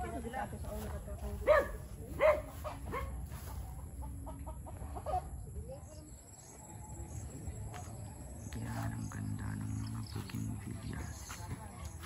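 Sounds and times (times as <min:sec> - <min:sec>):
chicken clucking: 0:02.5 - 0:05.4.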